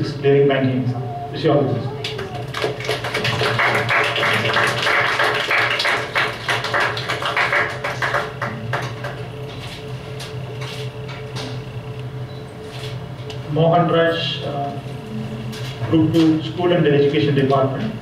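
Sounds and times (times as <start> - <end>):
steady low hum: 0.0 - 18.0
audience clapping: 2.0 - 9.3.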